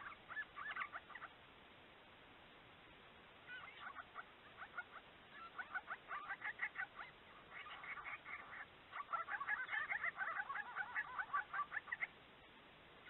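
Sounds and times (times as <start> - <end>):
birds chattering: 0.0 - 1.4, 3.4 - 12.2.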